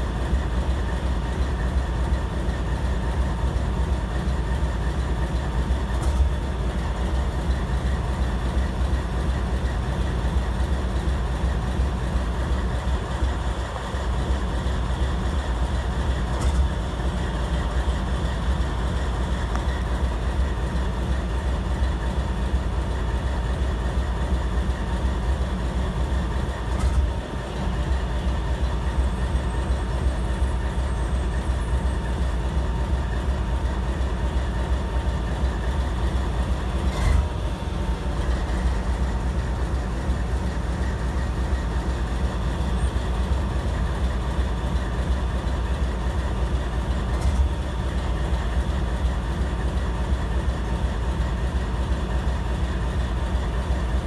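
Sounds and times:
train wheels rumbling on track: 0.0s - 54.0s.

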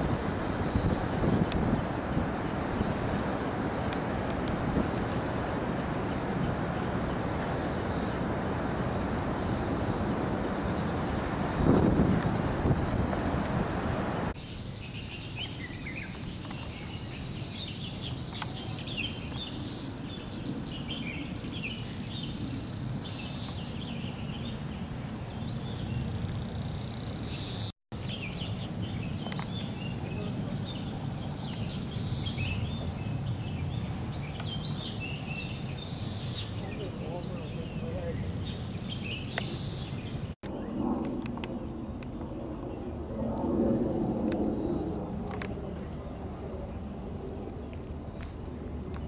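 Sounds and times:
high insect buzz: 0.0s - 27.7s, 29.3s - 36.7s, 38.2s - 40.4s
insects droning: 0.0s - 49.0s
birds chirping: 10.6s - 40.8s.

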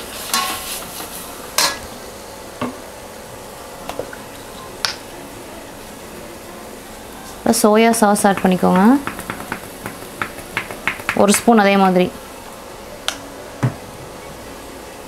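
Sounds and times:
vegetables sizzling: 7.7s - 12.3s.

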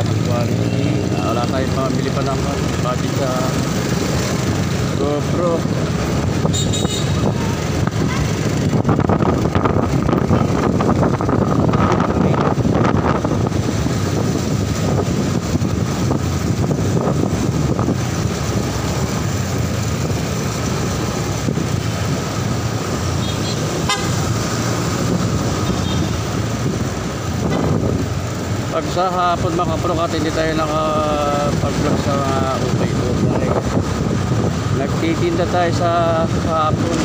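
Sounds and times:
motorcycle engine and road noise: 0.0s - 37.0s
wind on microphone: 5.7s - 28.7s, 30.9s - 37.0s
vehicle horn tooting: 6.5s - 7.4s, 23.2s - 24.2s.

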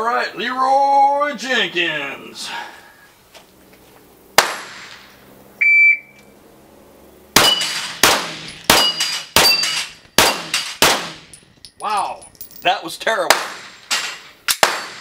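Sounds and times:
pistol shots: 4.4s - 5.0s, 7.4s - 11.3s, 13.3s - 15.0s
shot timer beep: 5.6s - 6.2s.

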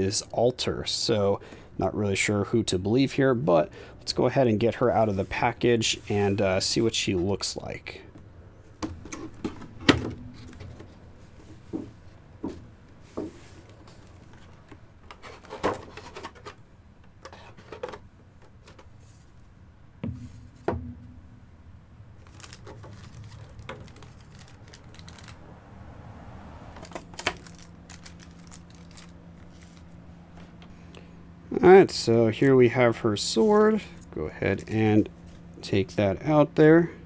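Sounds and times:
packaging clicks scrapes and knocks: 13.2s - 16.6s, 17.2s - 18.9s, 22.2s - 25.4s, 26.8s - 29.9s.

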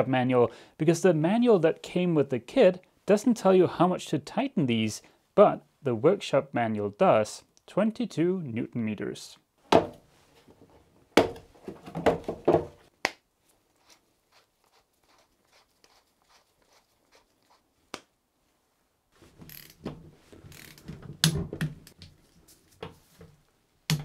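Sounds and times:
wrench ratcheting and clunking: 19.5s - 19.9s, 20.5s - 20.9s.

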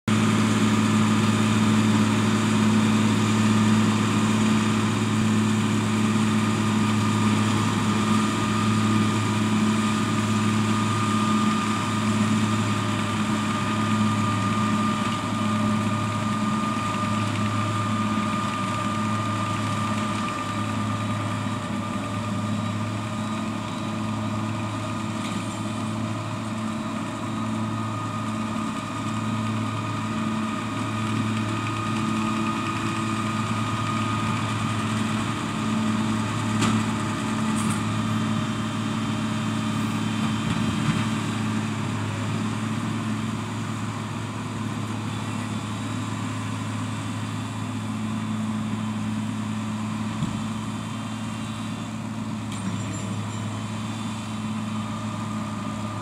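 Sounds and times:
tractor engine humming: 0.1s - 56.0s.

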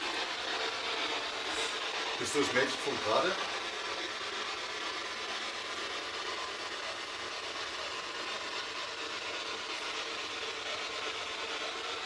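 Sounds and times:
radio static hiss: 1.2s - 4.4s.

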